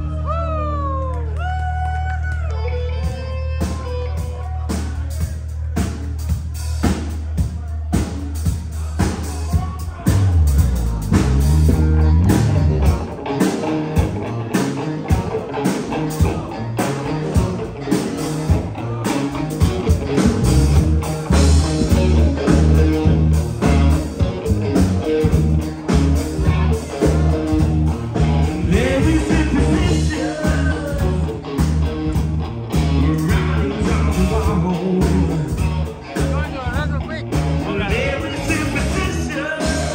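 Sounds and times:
live rock band playing: 0:00.0 - 0:39.9
person singing: 0:28.4 - 0:31.4, 0:32.7 - 0:35.9, 0:37.6 - 0:39.9.

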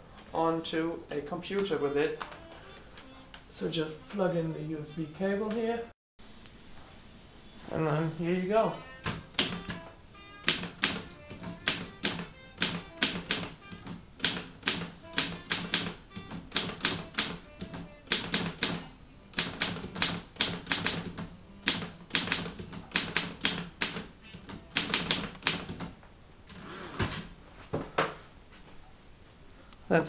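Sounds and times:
typewriter keystrokes clattering: 0:09.0 - 0:09.8, 0:10.4 - 0:26.0.

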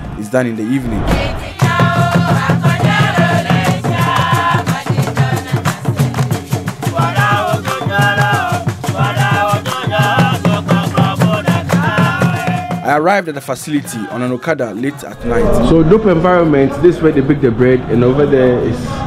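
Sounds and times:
upbeat song with fast beat: 0:00.7 - 0:14.3.

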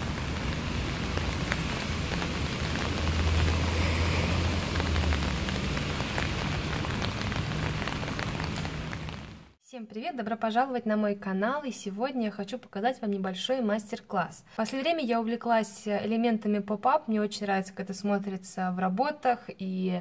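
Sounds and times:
rain on wet pavement: 0:00.0 - 0:09.6.

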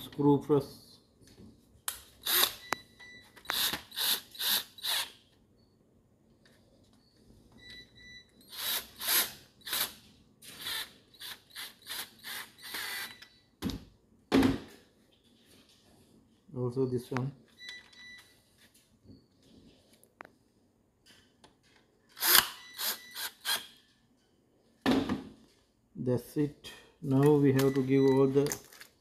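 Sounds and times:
cordless drill driving screws: 0:02.2 - 0:02.6, 0:03.5 - 0:05.1, 0:08.5 - 0:13.2, 0:22.2 - 0:23.7.

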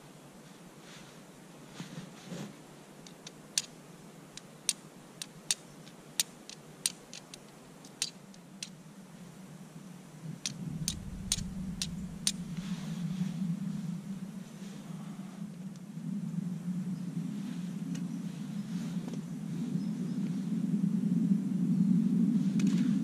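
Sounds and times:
low rumble: 0:10.0 - 0:16.9.

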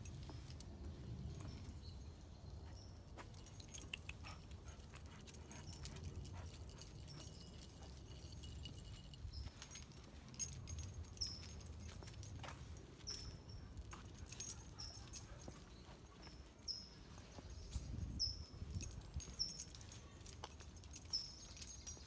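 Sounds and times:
collar tags jingling: 0:00.0 - 0:22.0.

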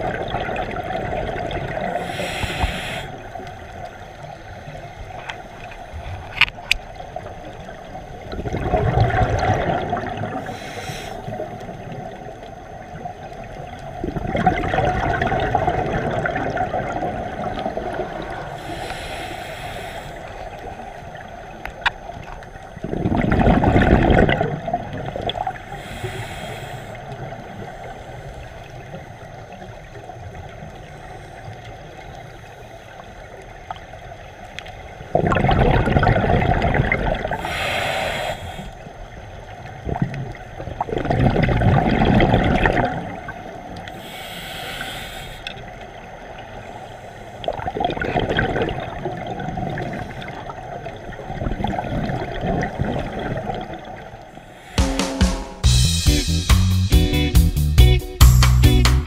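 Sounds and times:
exhaled bubbles gurgling: 0:00.0 - 0:05.2, 0:05.9 - 0:30.9, 0:35.0 - 0:44.2, 0:47.4 - 0:54.6
hissing regulator breaths: 0:02.0 - 0:03.4, 0:10.4 - 0:11.6, 0:18.4 - 0:20.8, 0:25.7 - 0:27.2, 0:37.4 - 0:38.9, 0:43.9 - 0:45.6, 0:54.3 - 0:55.2.

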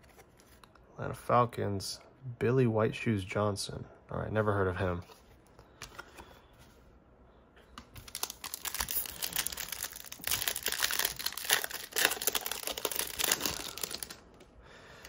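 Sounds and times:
foil wrapper crackling: 0:08.0 - 0:14.2.

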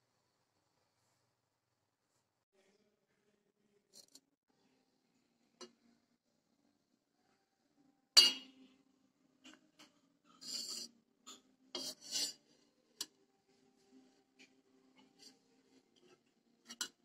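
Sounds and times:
spoon scraping steel bowl: 0:09.8 - 0:13.1, 0:15.0 - 0:17.0.

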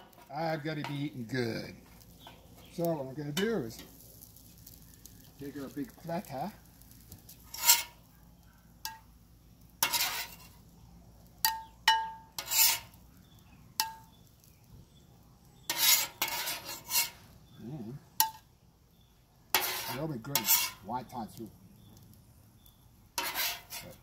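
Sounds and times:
metal spatula scraping a griddle: 0:00.0 - 0:08.1, 0:09.7 - 0:10.7, 0:11.4 - 0:14.5, 0:15.5 - 0:17.6, 0:18.2 - 0:18.5, 0:19.5 - 0:21.1, 0:23.1 - 0:24.0.

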